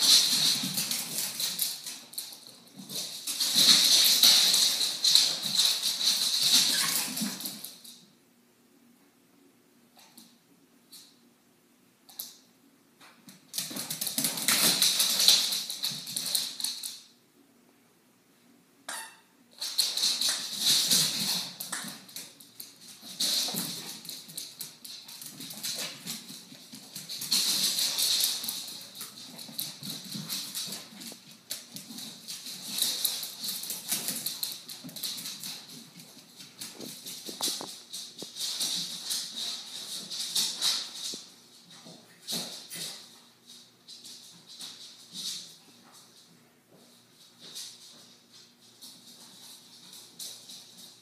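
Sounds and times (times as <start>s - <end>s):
dog claws scrabbling on hard floor: 0.0s - 8.0s, 13.3s - 17.0s, 19.6s - 43.2s.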